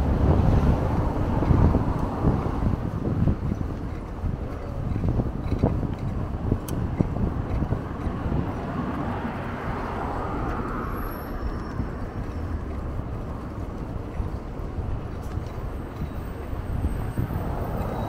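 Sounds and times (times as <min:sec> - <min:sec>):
road rumble: 0:00.0 - 0:18.0
wind: 0:00.0 - 0:18.0
vehicle passing: 0:07.5 - 0:15.6.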